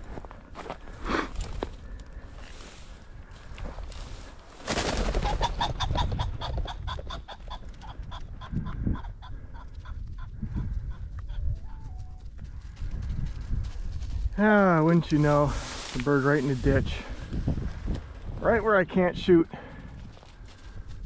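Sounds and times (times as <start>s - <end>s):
pheasant wingbeats: 4.0s - 14.2s
pheasant cackling: 5.0s - 11.9s.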